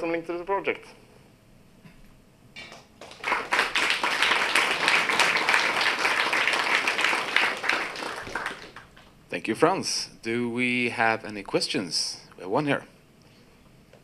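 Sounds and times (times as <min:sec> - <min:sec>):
audience applauding: 0:02.7 - 0:09.1.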